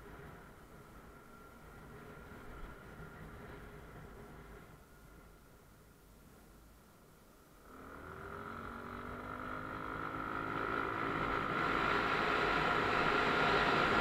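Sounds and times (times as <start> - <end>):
motorcycle engine accelerating: 7.7 - 14.0.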